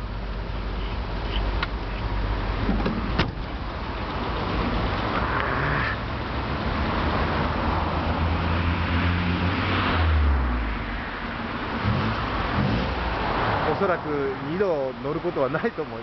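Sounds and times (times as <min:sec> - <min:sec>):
car engine idling: 0:00.0 - 0:07.0.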